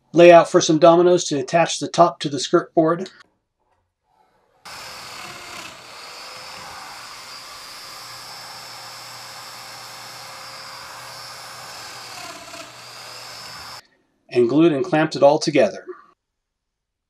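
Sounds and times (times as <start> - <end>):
power joiner whining: 4.7 - 13.8.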